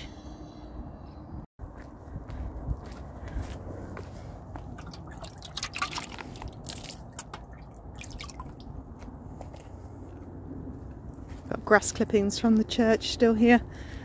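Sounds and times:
water splashing and dripping: 0:04.6 - 0:08.8.

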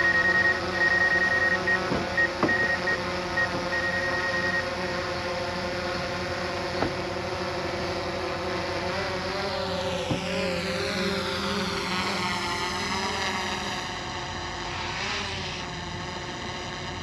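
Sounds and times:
short high beeps: 0:00.0 - 0:04.6
drone motors whining: 0:00.0 - 0:17.0.

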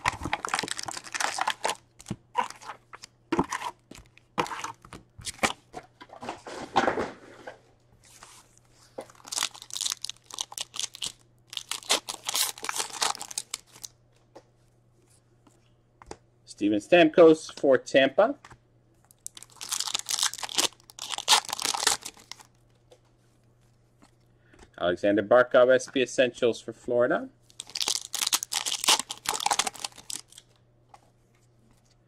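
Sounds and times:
foil wrappers crinkling and tearing: 0:00.0 - 0:02.8, 0:09.1 - 0:13.9, 0:19.2 - 0:22.5, 0:27.5 - 0:30.5.

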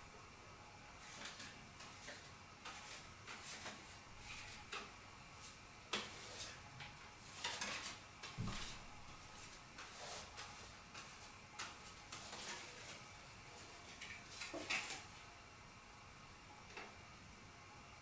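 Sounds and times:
playing cards rustling and tapping: 0:05.9 - 0:08.8, 0:09.4 - 0:15.1.

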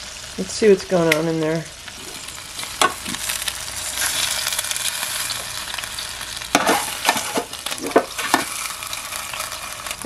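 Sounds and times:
chicken sizzling in a pan: 0:00.0 - 0:10.0.

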